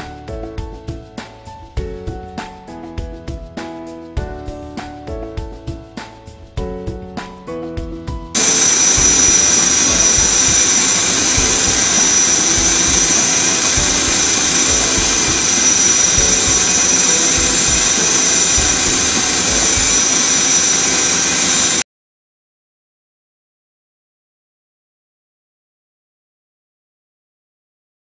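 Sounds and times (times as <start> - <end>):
drill spindle whining and cutting: 8.4 - 21.8.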